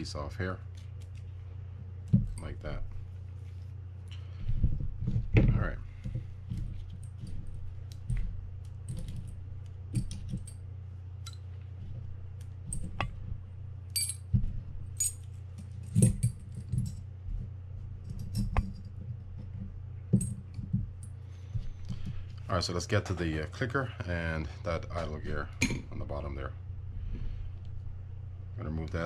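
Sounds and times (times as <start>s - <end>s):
low hum: 0.0s - 29.0s
small metal parts clinking: 13.9s - 14.4s, 15.0s - 17.0s.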